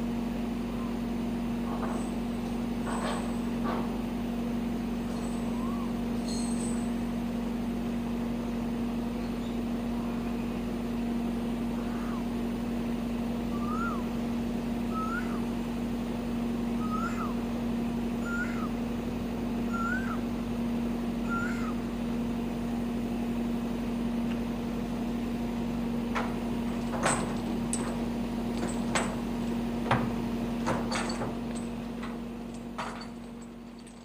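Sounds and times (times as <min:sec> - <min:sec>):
diesel truck engine humming: 0:06.8 - 0:34.0
animal calls: 0:11.7 - 0:12.4, 0:16.8 - 0:17.4, 0:18.2 - 0:18.8, 0:21.2 - 0:21.9
metallic clanks and clicks: 0:26.0 - 0:34.0.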